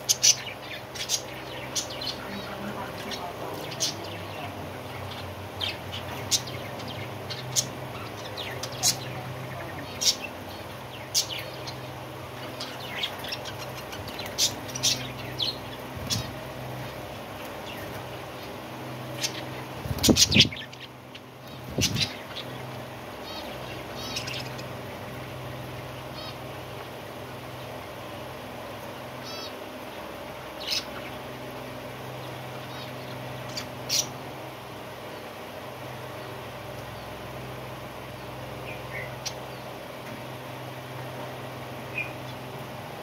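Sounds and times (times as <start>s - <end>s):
budgerigars chirping: 0.0s - 17.0s, 19.1s - 24.7s, 26.1s - 26.4s, 29.2s - 29.6s, 32.2s - 34.2s
low background hum: 0.0s - 43.0s.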